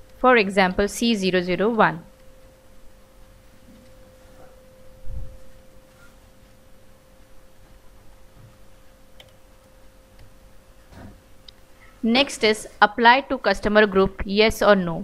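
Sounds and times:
faint electronic whine: 0.0s - 14.0s.

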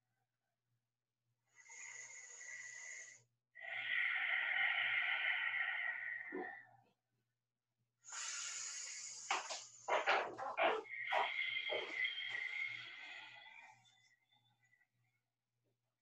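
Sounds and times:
woman breathing: 1.5s - 6.6s, 8.1s - 10.0s, 10.8s - 14.3s.

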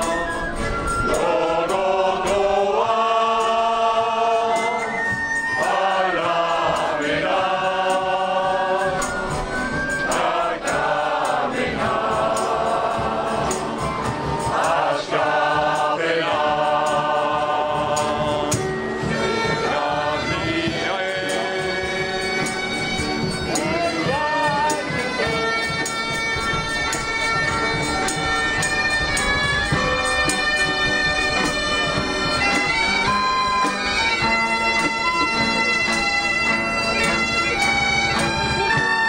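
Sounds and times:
crowd singing in chorus: 0.0s - 27.0s.

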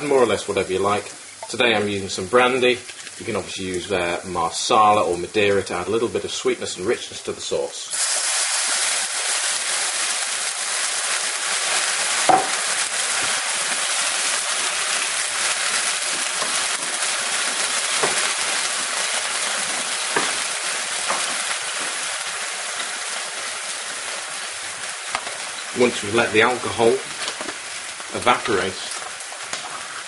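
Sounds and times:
loud sizzling in a frying pan: 0.0s - 30.0s
wooden spoon knocking on pan: 12.3s - 12.6s, 16.4s - 18.4s, 20.1s - 22.0s.

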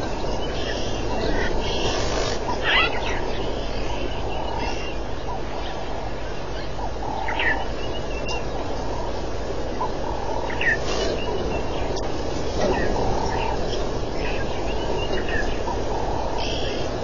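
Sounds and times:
steady rushing noise: 0.0s - 17.0s.

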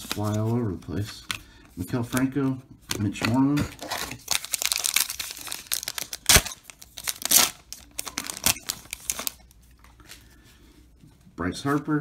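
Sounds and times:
wrapper tearing and crinkling: 3.8s - 9.5s.

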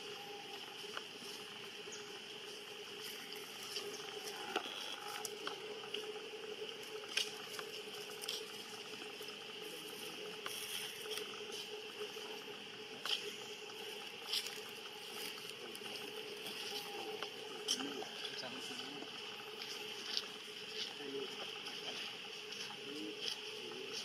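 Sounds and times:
steady low hum: 0.0s - 24.0s
small clicks and patters: 2.6s - 24.0s.

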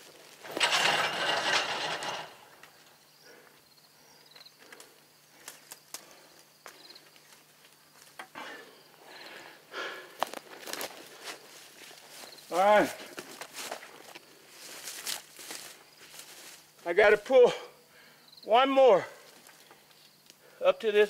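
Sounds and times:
barbed wire rustling and scraping: 0.0s - 6.4s, 10.3s - 17.2s.

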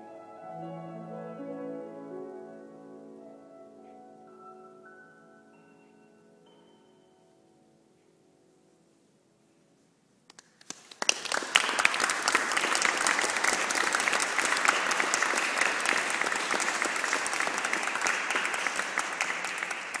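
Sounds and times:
audience clapping: 10.3s - 20.0s.

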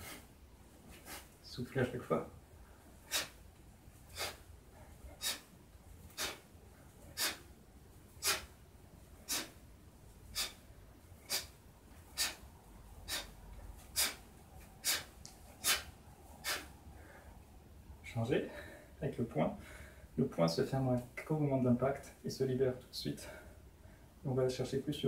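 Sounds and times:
man breathing out sharply: 2.9s - 3.4s, 4.1s - 5.5s, 6.1s - 6.5s, 7.1s - 7.5s, 8.2s - 8.6s, 9.2s - 9.6s, 10.2s - 17.4s.

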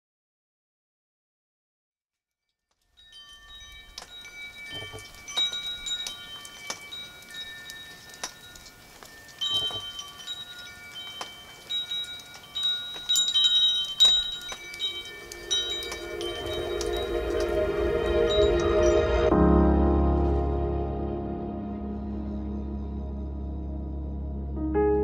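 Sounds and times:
wind chimes ringing: 2.9s - 19.4s.

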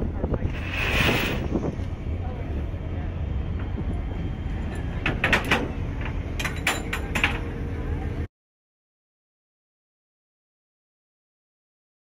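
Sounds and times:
metallic clanks and knocks: 4.7s - 7.5s.

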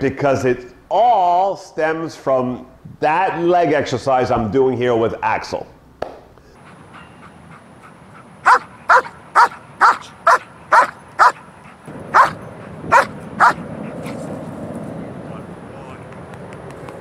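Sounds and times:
dog barking: 8.4s - 11.5s, 12.1s - 14.2s.

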